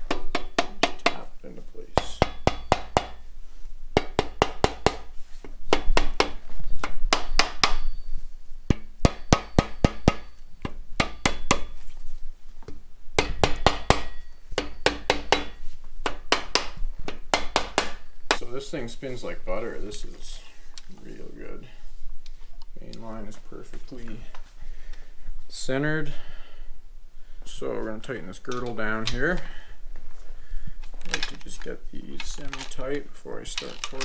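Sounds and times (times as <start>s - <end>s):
rubber mallet tapping metal: 0.0s - 1.3s, 2.0s - 3.2s, 4.0s - 5.1s, 5.7s - 8.1s, 8.7s - 11.8s, 13.2s - 18.5s.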